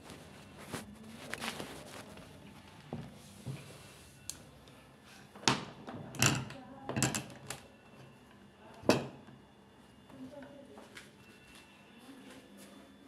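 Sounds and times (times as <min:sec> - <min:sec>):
knocks and clatters of tools: 0:05.4 - 0:07.6.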